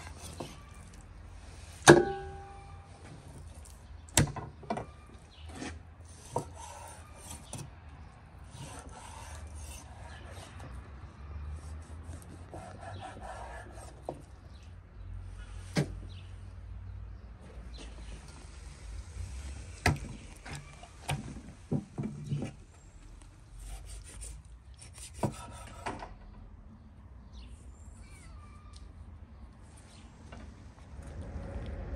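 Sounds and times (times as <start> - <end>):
knife scraping through meat: 0.0 - 1.8, 5.4 - 7.6, 8.4 - 10.8, 11.4 - 14.1, 23.6 - 25.8.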